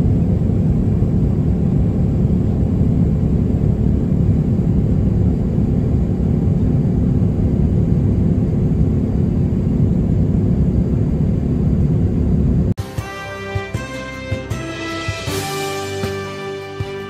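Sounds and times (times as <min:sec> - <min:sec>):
jet engine and airflow roar: 0:00.0 - 0:12.8.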